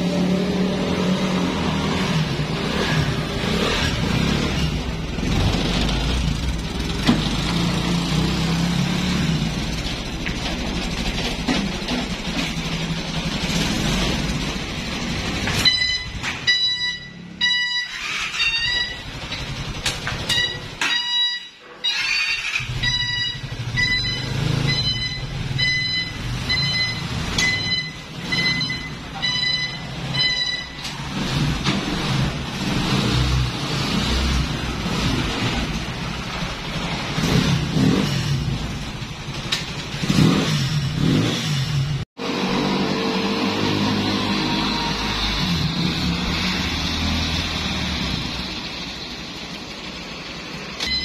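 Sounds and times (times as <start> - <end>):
atv engine running: 0.0 - 16.2, 16.8 - 20.8, 22.0 - 51.0
reverse buzzer beeping: 15.5 - 19.3, 20.3 - 30.9, 50.8 - 51.0.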